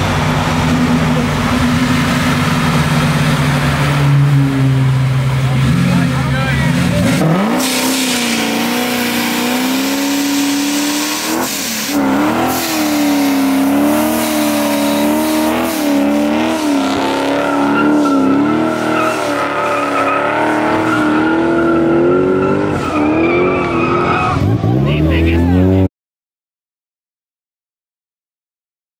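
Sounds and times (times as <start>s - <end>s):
tires squealing on pavement: 0.0s - 25.8s
car engine revving: 0.0s - 25.9s.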